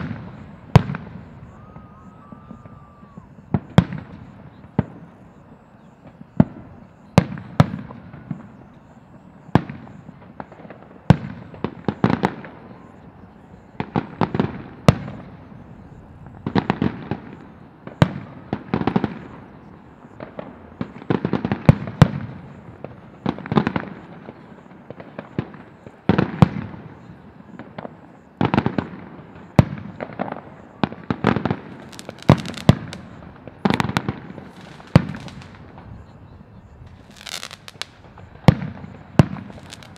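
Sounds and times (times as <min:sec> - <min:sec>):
firework shells bursting: 0:31.2 - 0:36.0, 0:36.9 - 0:39.9.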